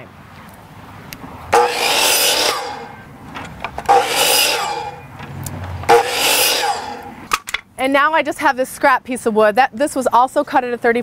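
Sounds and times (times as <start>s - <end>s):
miter saw cutting wood: 1.5s - 3.1s, 3.8s - 5.1s, 5.8s - 7.3s.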